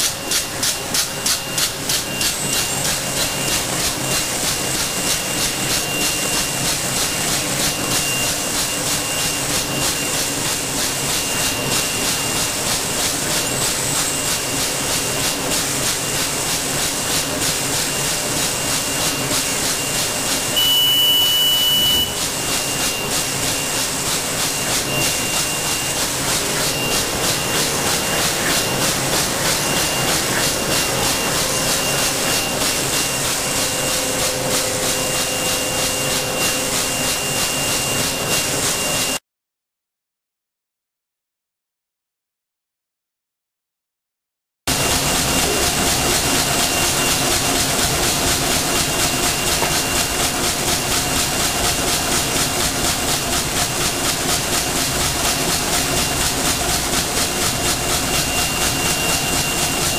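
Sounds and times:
machine clattering and hissing: 0.0s - 39.2s, 44.7s - 59.9s
high steady beep: 20.5s - 23.8s.

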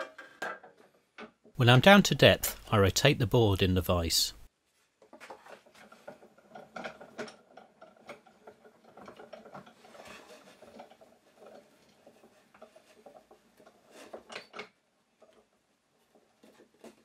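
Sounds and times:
metal vise clicking and clacking: 5.2s - 17.0s.

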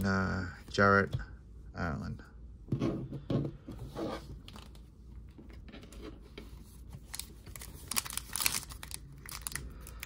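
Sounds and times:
cards clicking and rustling: 7.0s - 10.0s
wrapper crinkling: 7.1s - 10.0s.

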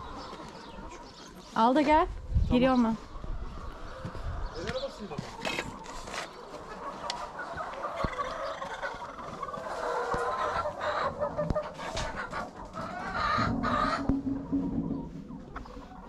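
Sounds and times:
hens clucking: 0.0s - 16.0s
loud low hen call: 12.8s - 15.0s.

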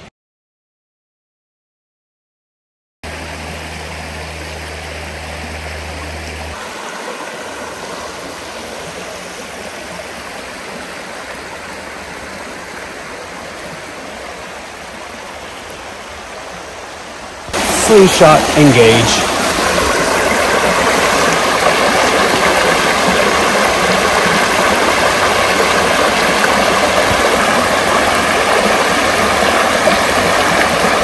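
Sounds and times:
low hum: 3.0s - 6.7s
creek flowing: 3.0s - 31.0s.

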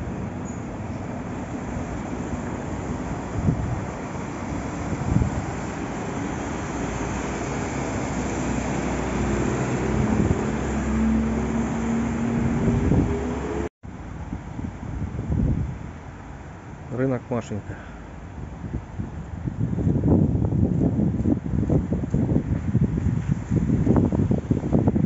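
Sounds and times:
vehicles driving through water: 0.0s - 14.2s
wind buffeting microphone: 0.0s - 16.2s, 18.2s - 25.0s
vehicle engine hum: 0.0s - 16.8s.

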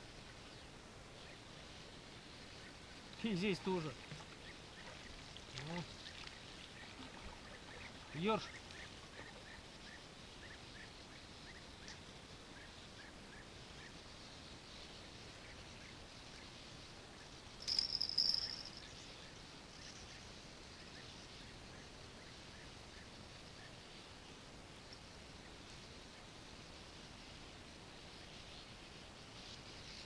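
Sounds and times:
faint soft chirps: 17.6s - 20.2s.

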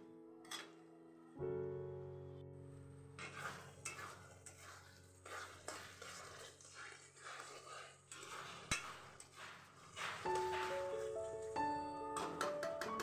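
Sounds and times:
metal spatula scraping a pan: 3.2s - 12.3s.

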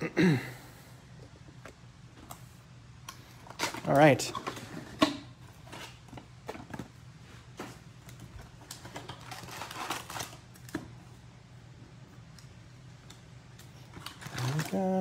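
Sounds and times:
foil packs crinkling: 7.7s - 10.8s, 13.8s - 15.0s.

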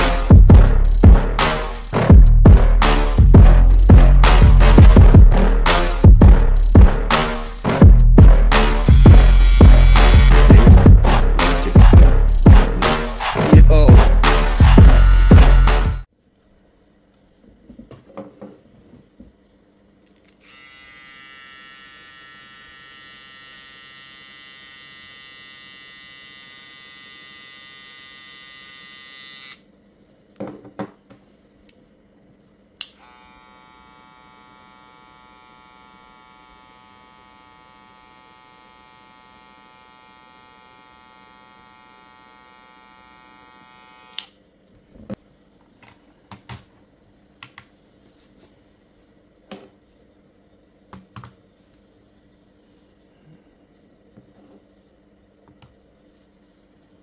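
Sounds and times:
hair clippers buzzing: 8.6s - 16.0s, 20.4s - 29.6s, 32.8s - 44.4s.

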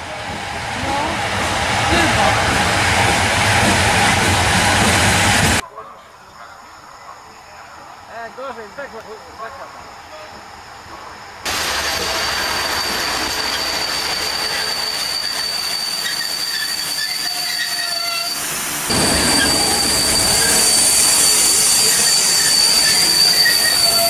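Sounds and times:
rolling train rumble: 0.0s - 5.6s, 9.3s - 24.0s
train wheels squealing: 11.8s - 24.0s.

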